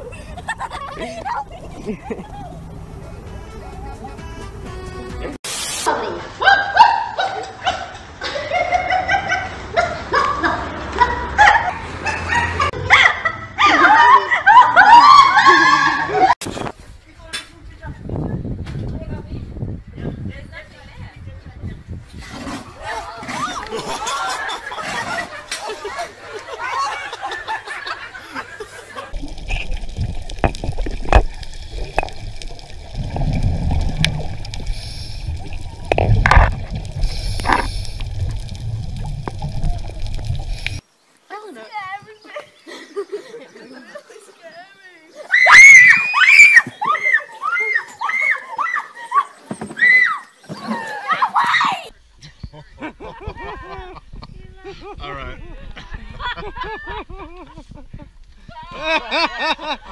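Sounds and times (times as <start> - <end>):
bubbles gurgling: 29.1 - 40.8
underwater low rumble: 29.1 - 40.8
underwater clicks and knocks: 29.2 - 34.7, 35.3 - 40.8.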